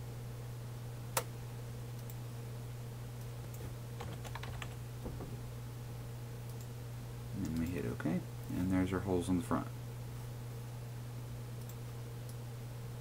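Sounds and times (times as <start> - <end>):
low electrical hum: 0.0 - 13.0
keyboard taps: 3.5 - 5.4.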